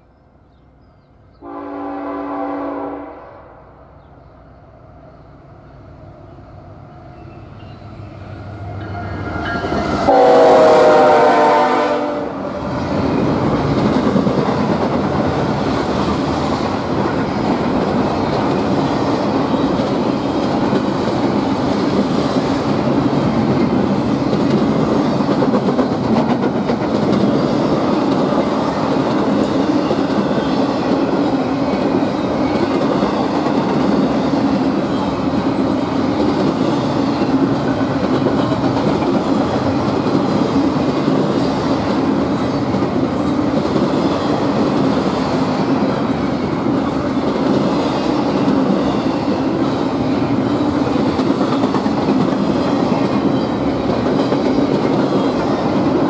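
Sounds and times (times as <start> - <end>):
train air horn: 1.4 - 3.8, 9.6 - 12.4
train rumble and clickety-clack: 6.9 - 56.0.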